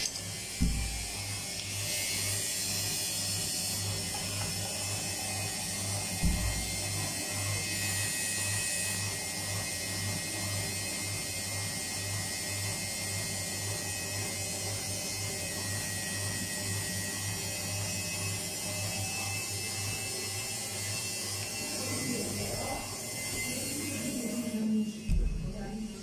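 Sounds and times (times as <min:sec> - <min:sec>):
washing machine spinning: 0:00.0 - 0:26.0
short low thump: 0:00.6 - 0:01.2, 0:06.2 - 0:06.8, 0:25.1 - 0:25.5.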